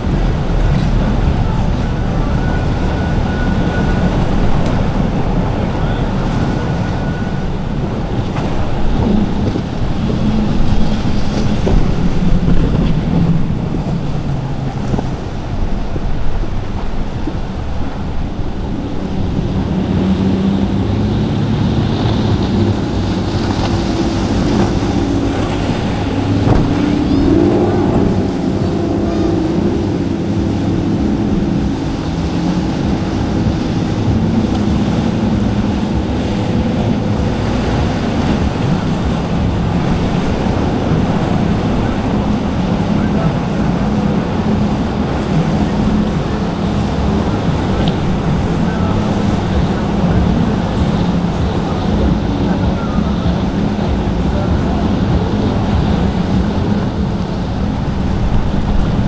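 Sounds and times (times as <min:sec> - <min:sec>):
powerboat engines running hard: 0:00.0 - 0:59.0
waves breaking: 0:00.0 - 0:59.0
wind on microphone: 0:00.0 - 0:59.0.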